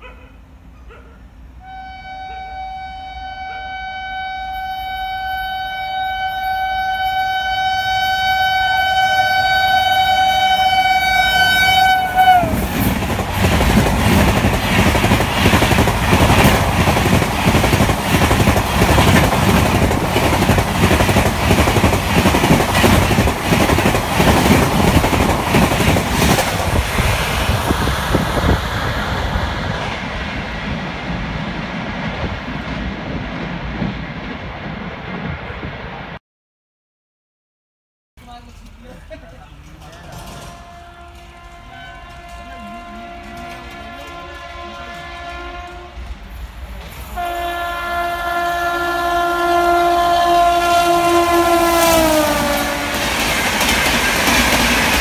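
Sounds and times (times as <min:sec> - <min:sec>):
train air horn blast: 0:01.6 - 0:12.9, 0:40.1 - 0:46.1, 0:47.1 - 0:53.3
train wheels clattering on rails: 0:12.3 - 0:29.0, 0:39.6 - 0:45.4, 0:51.8 - 0:55.0.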